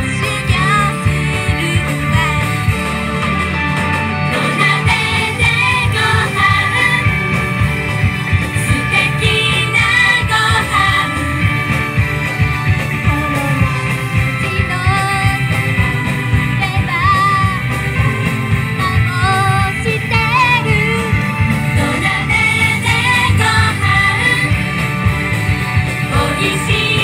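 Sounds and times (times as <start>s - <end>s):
women singing pop song: 0.0s - 2.7s, 4.3s - 7.2s, 8.6s - 11.5s, 18.8s - 24.6s, 26.0s - 27.0s
amplified backing music: 0.0s - 27.0s.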